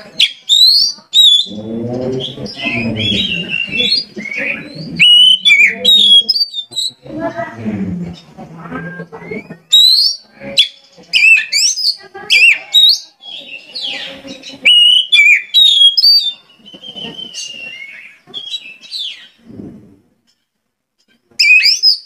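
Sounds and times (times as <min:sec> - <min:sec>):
songbird whistling song: 0:00.0 - 0:07.0, 0:08.8 - 0:19.4, 0:21.4 - 0:22.0.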